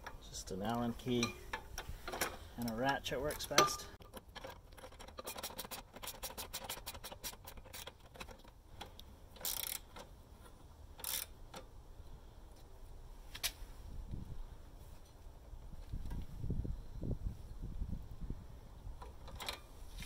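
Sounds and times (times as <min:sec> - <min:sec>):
ratchet wrench clicking: 0:08.9 - 0:10.1, 0:11.0 - 0:11.4.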